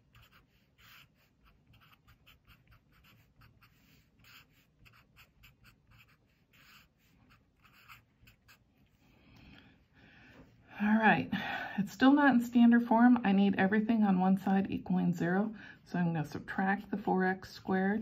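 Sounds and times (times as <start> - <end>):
felt-tip marker scratching on paper: 0.0 - 9.0.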